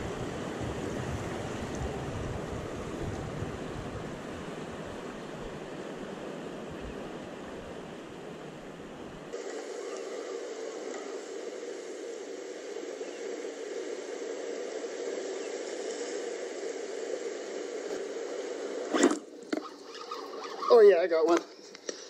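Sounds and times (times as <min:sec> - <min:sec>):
wind buffeting microphone: 0:00.0 - 0:09.3
ocean surf against rocks: 0:00.0 - 0:21.6.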